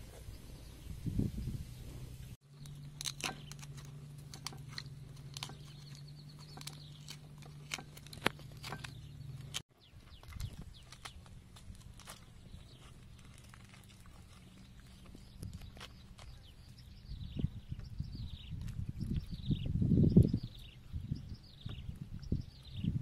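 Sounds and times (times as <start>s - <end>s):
scraper crunching pineapple flesh: 2.5s - 16.5s
knife cutting pineapple: 2.6s - 9.6s.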